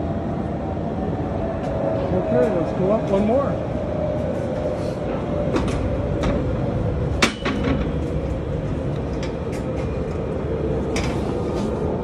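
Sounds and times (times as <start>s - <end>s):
hoist motor rumble and whine: 0.0s - 12.0s
rattles and knocks: 7.2s - 8.2s.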